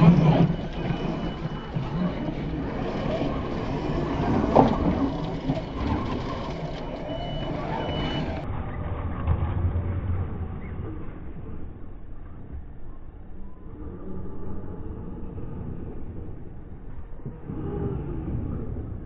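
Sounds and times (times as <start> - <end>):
tyres churning sand: 0.0 - 8.5
faint high whine: 0.0 - 9.0.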